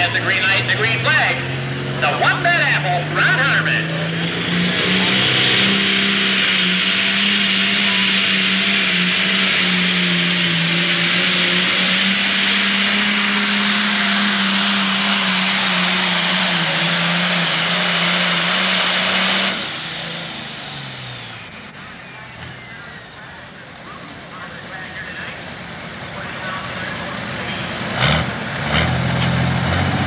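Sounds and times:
diesel engine at full load: 0.0s - 30.0s.

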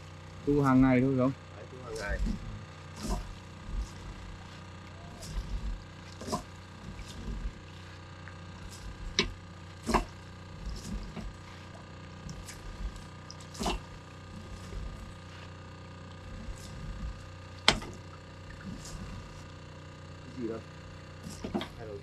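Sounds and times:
steady low hum: 0.0s - 22.0s
wooden knocks and clacks: 21.3s - 21.8s.

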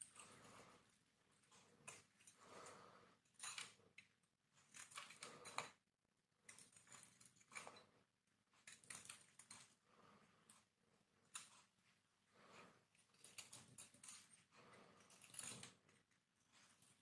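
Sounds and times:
knife scraping bar of soap: 12.4s - 17.0s.

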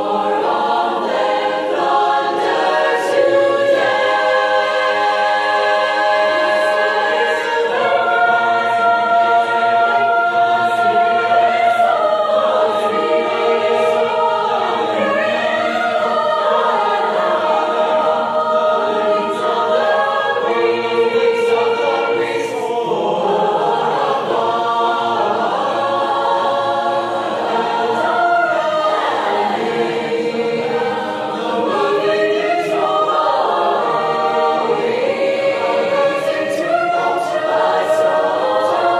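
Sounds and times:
basses singing rhythmic syllables: 0.0s - 38.9s
mixed choir singing a cappella: 0.0s - 38.9s.

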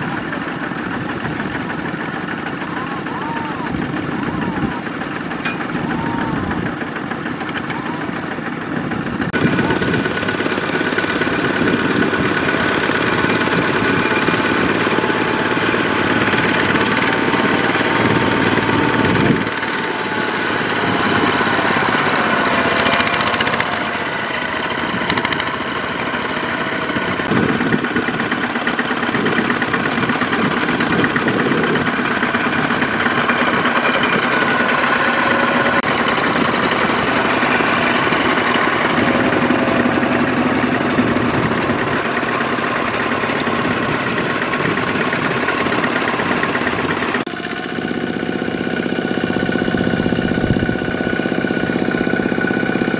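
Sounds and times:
diesel tractor engine knocking: 0.0s - 52.9s.

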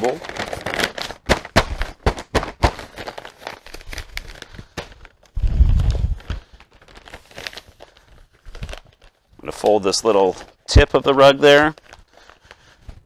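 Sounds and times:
wrapping paper crinkling: 0.0s - 13.0s.

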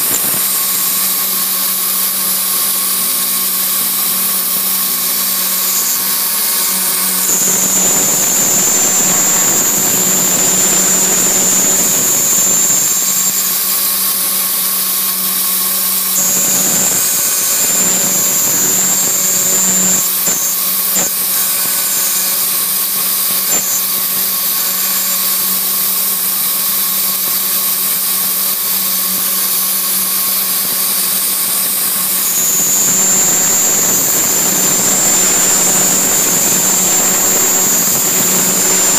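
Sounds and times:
milling spindle hum: 0.0s - 14.0s, 16.0s - 24.6s, 32.1s - 38.9s
end mill cutting plastic whine: 0.0s - 25.9s, 30.8s - 38.9s.

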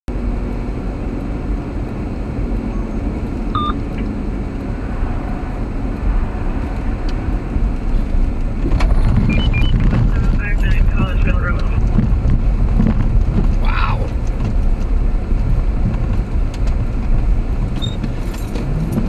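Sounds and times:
truck engine and tyre rumble: 0.1s - 19.0s
brief beep: 3.6s - 3.8s, 8.9s - 9.8s.

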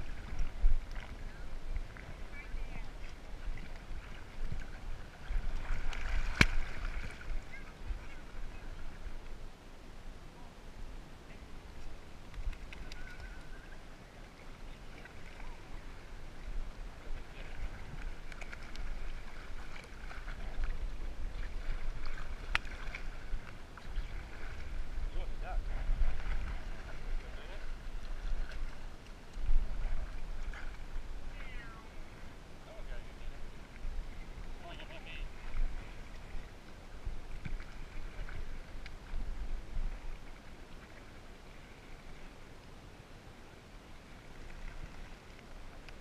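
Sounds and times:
small splashes and ticks: 0.0s - 9.4s, 11.8s - 25.2s, 26.0s - 31.5s, 34.7s - 42.8s, 44.2s - 46.0s
water sloshing and splashing: 0.0s - 9.4s, 11.8s - 42.6s.

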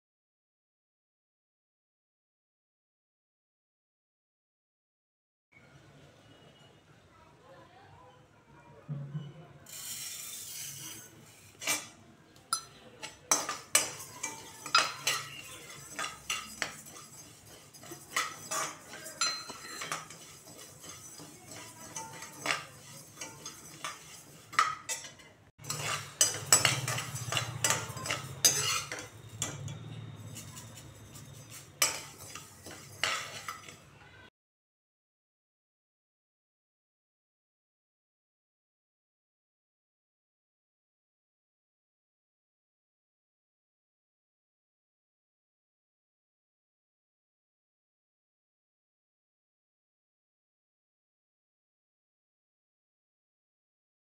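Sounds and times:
metal spatula scraping pan: 9.7s - 34.3s.

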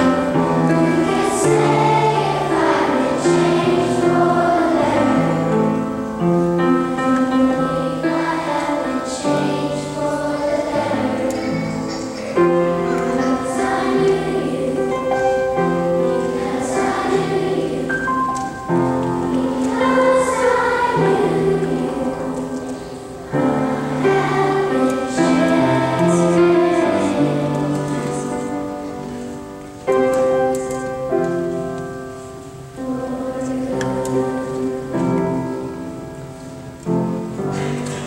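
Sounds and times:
children's choir singing: 0.0s - 38.0s.

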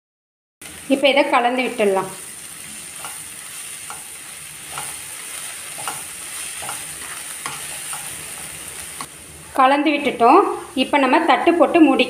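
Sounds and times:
food sizzling: 0.6s - 12.0s
spatula scraping pan: 2.4s - 9.1s.

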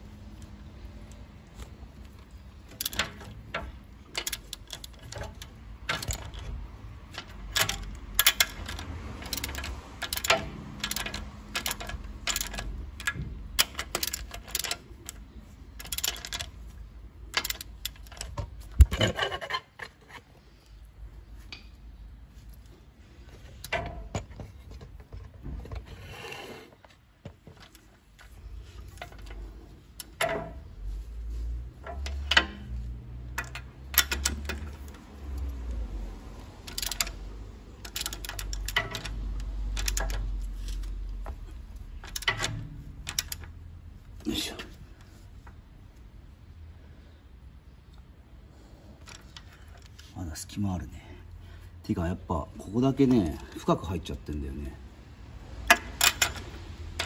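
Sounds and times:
ratchet wrench clicking: 2.7s - 6.5s, 7.1s - 15.2s, 15.8s - 16.5s, 32.0s - 35.5s, 36.6s - 43.6s
metal taps and scrapes: 22.7s - 35.6s.

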